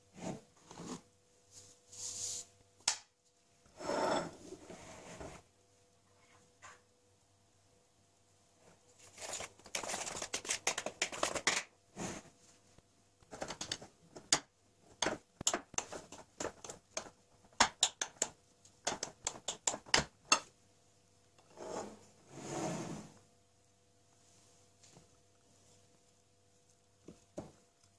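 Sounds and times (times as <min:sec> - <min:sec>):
dry ingredients stirred in plastic bowl: 0:09.0 - 0:11.6.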